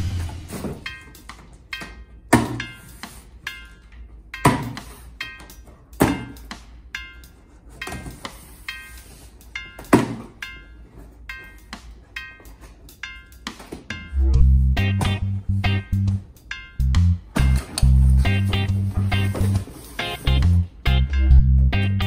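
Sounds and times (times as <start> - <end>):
plucked notes music: 11.4 - 22.0.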